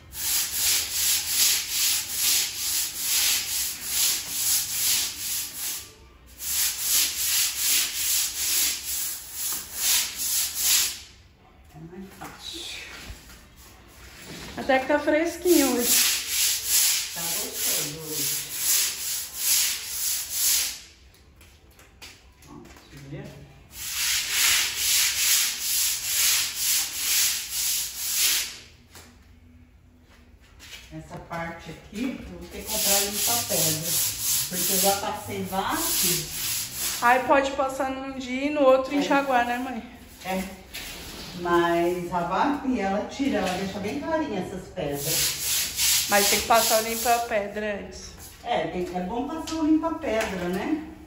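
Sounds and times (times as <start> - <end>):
brush scrubbing wet tile floor: 0.1 - 11.0, 15.4 - 20.8, 23.7 - 28.6, 32.4 - 37.6, 38.7 - 42.4, 44.8 - 48.4.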